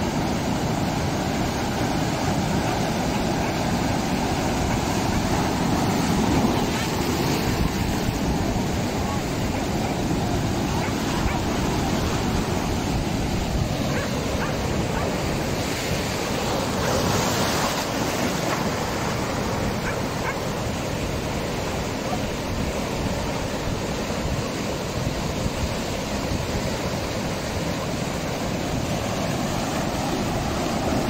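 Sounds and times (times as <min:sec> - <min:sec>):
sea surf breaking over rocks: 0:00.0 - 0:31.0.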